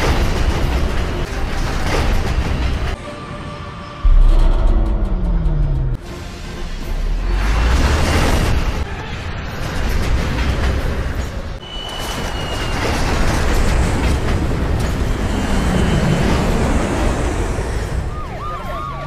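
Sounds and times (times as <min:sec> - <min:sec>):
emergency siren wailing: 0:17.8 - 0:19.0.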